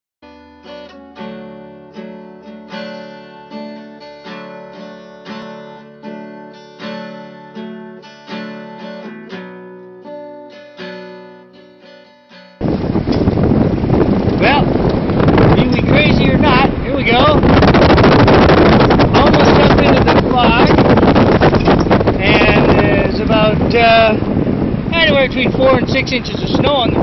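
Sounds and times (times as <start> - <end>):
acoustic guitar strumming chords: 0.2 - 25.8
loud rush of noise: 12.6 - 27.0.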